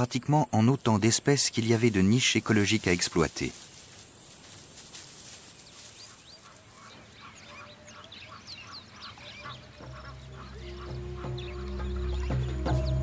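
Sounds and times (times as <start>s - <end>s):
birds calling: 0.0s - 13.0s
music: 9.3s - 13.0s.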